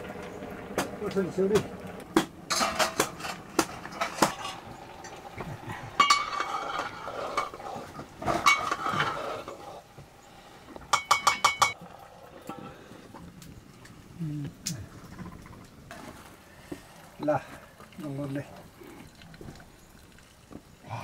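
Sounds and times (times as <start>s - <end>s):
metal ladle clinking on pot: 10.9s - 11.8s.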